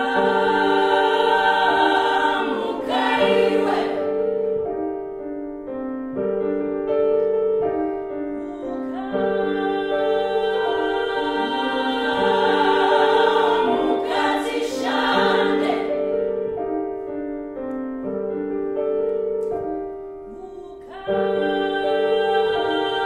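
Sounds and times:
choir singing sustained chords: 0.0 - 4.9, 8.4 - 16.7, 20.3 - 23.0.

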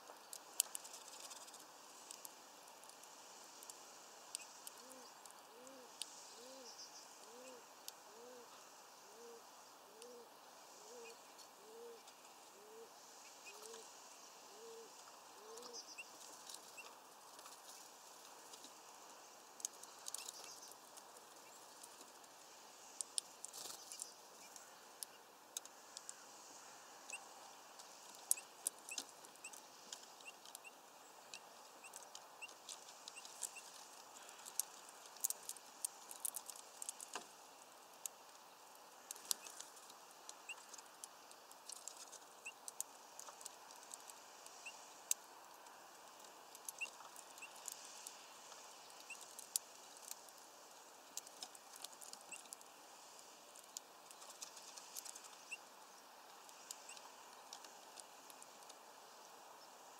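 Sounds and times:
birds pecking clicks and taps: 0.2 - 6.1, 19.6 - 26.2, 27.8 - 30.7, 31.3 - 37.3, 37.9 - 50.4, 51.1 - 52.6, 53.6 - 55.5
faint high bird chirps: 4.4 - 7.6, 14.5 - 16.9.

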